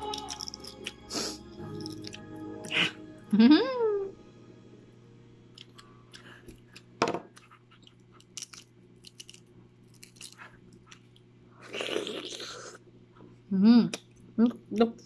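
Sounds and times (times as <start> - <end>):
eggshell crackling and clicking: 5.5 - 11.3.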